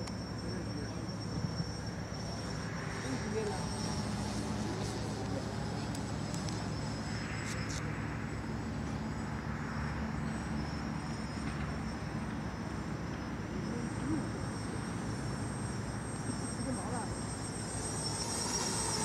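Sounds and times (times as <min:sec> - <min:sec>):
drone motors buzzing: 0:00.0 - 0:19.0.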